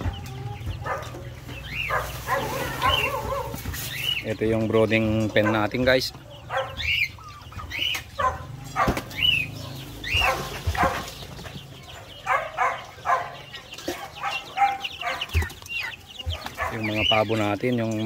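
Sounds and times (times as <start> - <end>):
chicks peeping and clucking: 0.0 - 18.0.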